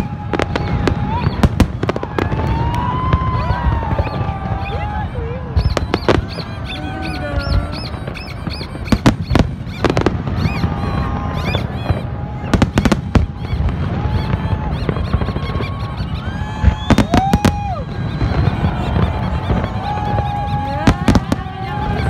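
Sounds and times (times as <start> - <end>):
low rumble of fireworks: 0.0 - 22.0
firework shells bursting: 5.5 - 22.0.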